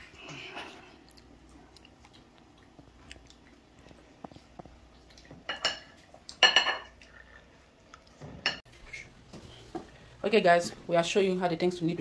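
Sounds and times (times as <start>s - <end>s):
cutlery clinking on ceramic plate: 5.5s - 7.0s.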